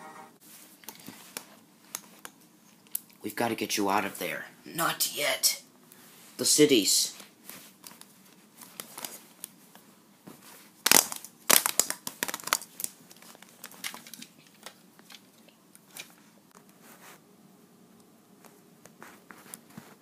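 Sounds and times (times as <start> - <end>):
toy figures rustling on fabric: 7.1 - 10.8, 12.1 - 17.2, 18.5 - 20.0.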